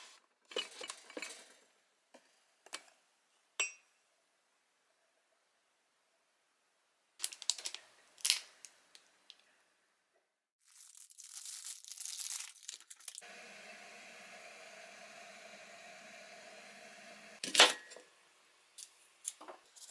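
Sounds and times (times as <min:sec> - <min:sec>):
plastic wrapper crinkling: 0:07.2 - 0:09.0, 0:10.6 - 0:13.2
steady hum: 0:13.2 - 0:17.4.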